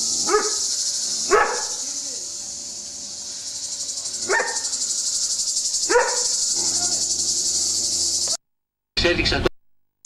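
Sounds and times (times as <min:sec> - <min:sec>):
cicadas buzzing: 0:00.0 - 0:08.4
dog barking: 0:00.2 - 0:00.7, 0:01.3 - 0:01.8, 0:04.2 - 0:04.7, 0:05.8 - 0:06.4.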